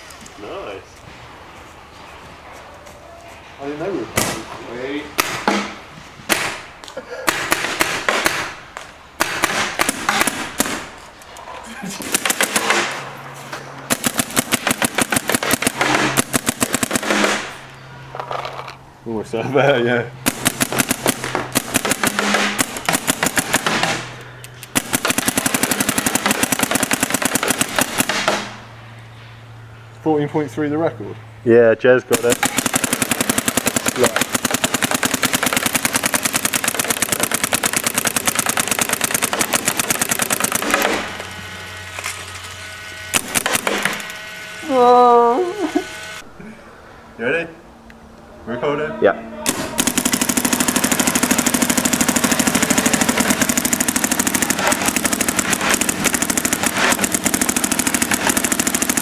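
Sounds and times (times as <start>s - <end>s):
paintball marker rapid firing: 5.2s - 6.7s, 7.3s - 8.6s, 9.2s - 10.9s, 12.0s - 13.0s, 13.9s - 17.7s, 20.2s - 28.7s, 32.1s - 41.3s, 43.1s - 44.1s, 49.5s - 59.0s.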